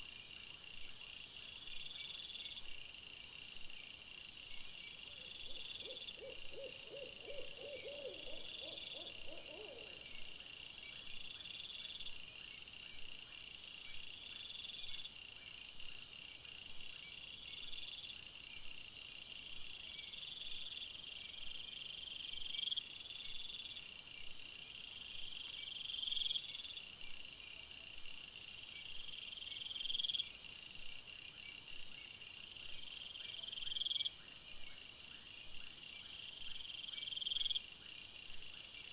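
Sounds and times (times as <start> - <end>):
night insects chirping: 0.0 - 38.9
owl hooting: 5.5 - 10.0.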